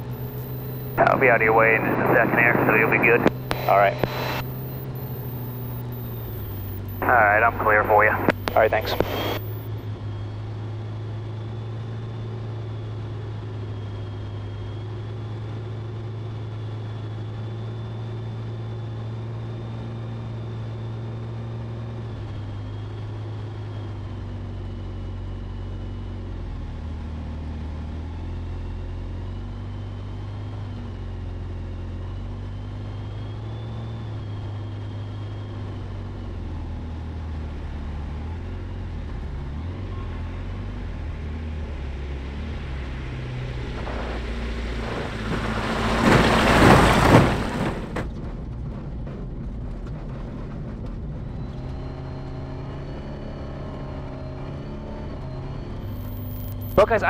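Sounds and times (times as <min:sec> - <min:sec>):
aircraft piston engine running: 0:00.0 - 0:09.7
faint high whine: 0:00.0 - 0:09.8.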